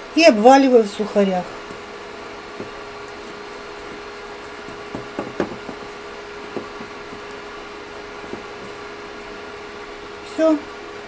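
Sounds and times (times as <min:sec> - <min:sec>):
steady low hum: 0:00.0 - 0:11.0
hand tapping in ceramic bowl: 0:04.6 - 0:07.3.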